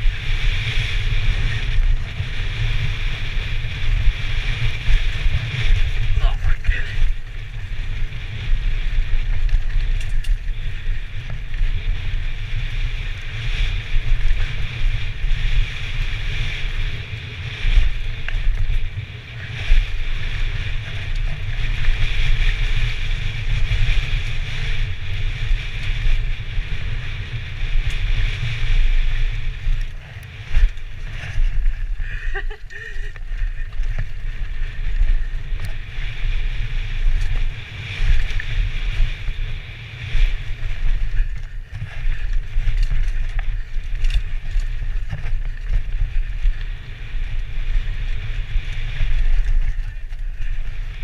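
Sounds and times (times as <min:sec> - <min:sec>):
bike rolling and rattling on dirt: 0:00.0 - 0:51.0
wind buffeting microphone: 0:00.0 - 0:51.0.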